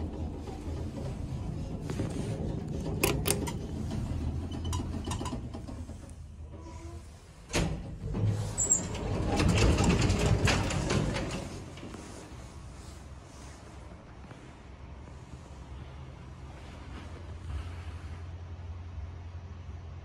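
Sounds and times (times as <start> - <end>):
lift doors sliding open: 0.0 - 13.8
lift car rumble: 0.0 - 20.0
lift mechanism clunk: 2.4 - 12.0.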